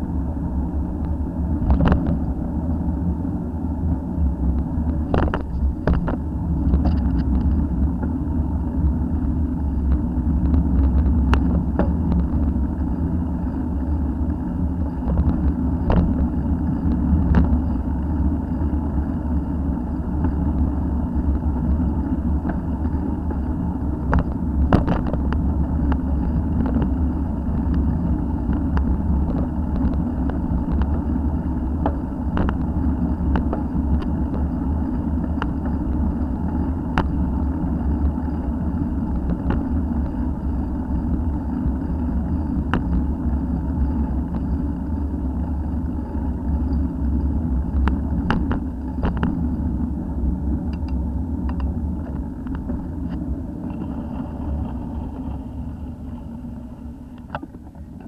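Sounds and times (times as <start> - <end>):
wind and road rumble: 0.0 - 58.0.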